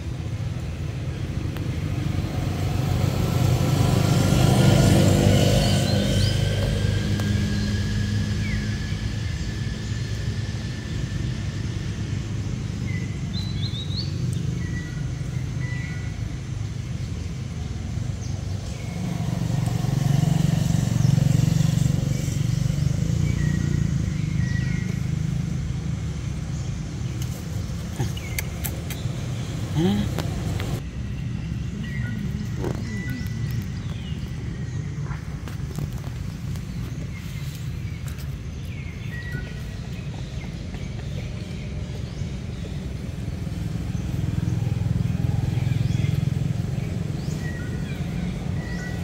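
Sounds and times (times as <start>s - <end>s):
vehicle engine rumbling: 0.0s - 49.0s.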